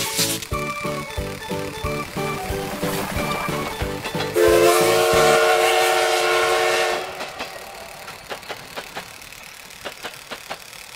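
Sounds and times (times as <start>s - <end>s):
steam train whistle: 3.2s - 7.8s.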